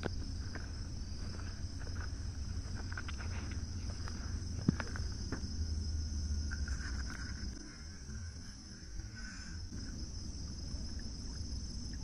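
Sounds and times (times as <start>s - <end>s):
insects chirring: 0.0s - 12.0s.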